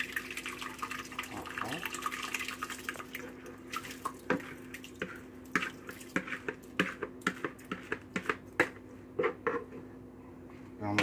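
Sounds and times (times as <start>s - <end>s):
spatula scraping a bowl: 4.3s - 9.8s.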